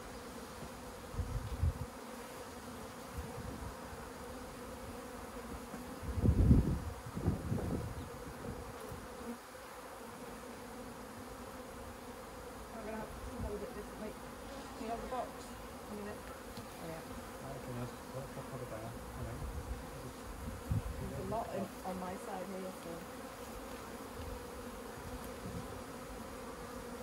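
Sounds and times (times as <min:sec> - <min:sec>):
bees buzzing: 0:00.0 - 0:27.0.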